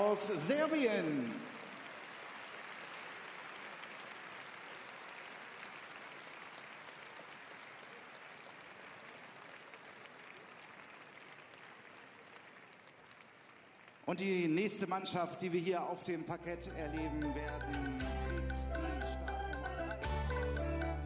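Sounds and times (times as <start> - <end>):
audience applause: 0.0 - 14.9.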